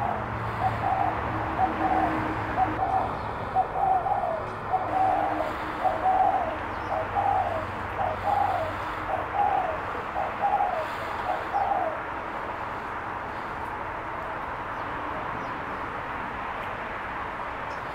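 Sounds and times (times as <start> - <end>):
dove cooing: 0.0 - 12.1.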